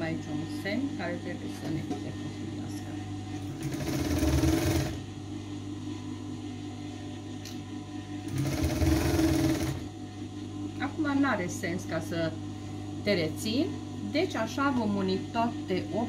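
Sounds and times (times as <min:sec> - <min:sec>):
sewing machine stitching: 0:03.5 - 0:05.0, 0:08.3 - 0:09.9.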